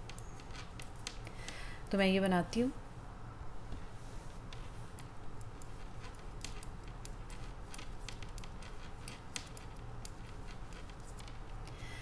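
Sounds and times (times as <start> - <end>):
low steady hum: 0.0 - 12.0
metal knitting needles clicking: 4.5 - 11.8.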